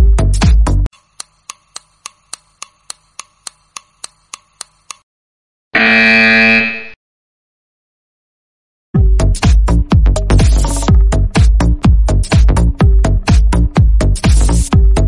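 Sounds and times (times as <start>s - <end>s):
loud buzzer: 5.7s - 7.0s.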